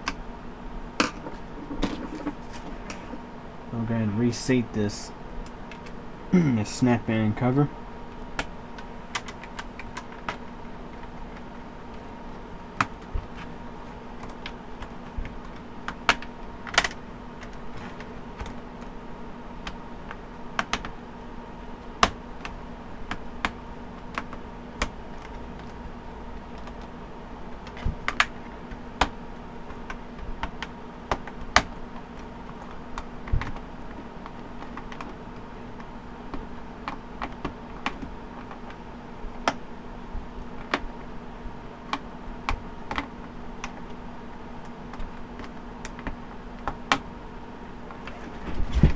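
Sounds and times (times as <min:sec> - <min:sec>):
faint steady hum: 0:00.0 - 0:48.9.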